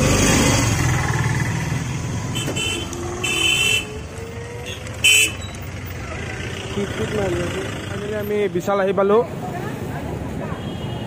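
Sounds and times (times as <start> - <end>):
road noise: 0.0 - 11.0
vehicle horns beeping: 2.3 - 4.0, 4.6 - 6.8.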